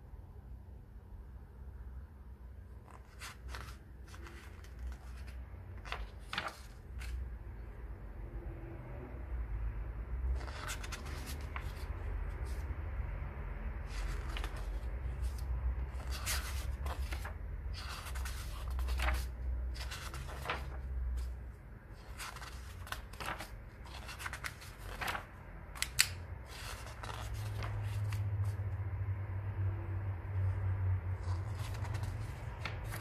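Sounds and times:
pages turning by hand: 2.8 - 7.4, 10.3 - 12.7, 13.8 - 28.7, 31.1 - 33.0
sharp paper snap: 25.8 - 26.2.

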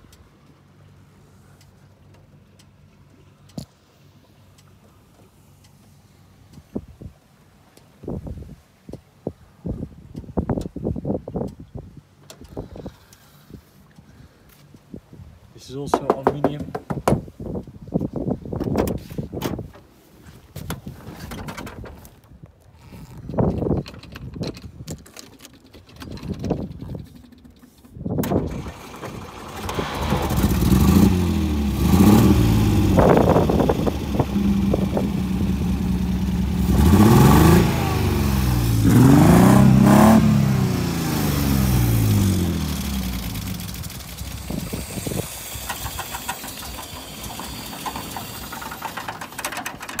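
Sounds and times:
car engine starting and revving: 28.2 - 48.5.

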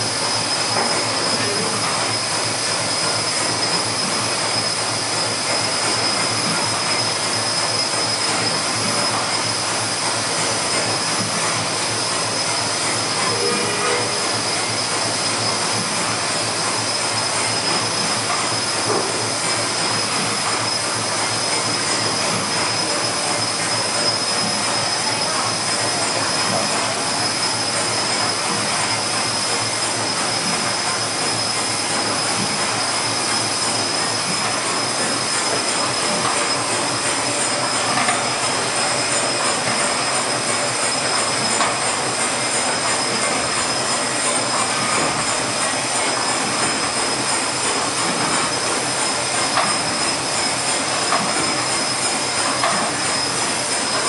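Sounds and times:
steam engine mechanical din: 0.0 - 54.0
high-pitched whine: 12.2 - 54.0.

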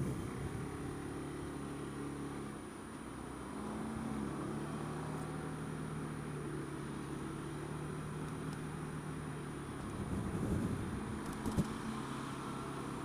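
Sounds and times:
scooter engine running at low speed: 4.2 - 13.0.

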